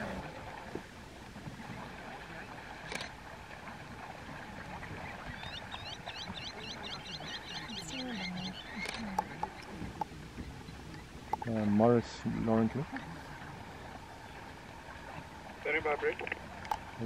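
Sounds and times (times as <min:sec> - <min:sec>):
shallow water splashing: 0:00.0 - 0:17.0
sharp clicks: 0:08.7 - 0:09.7.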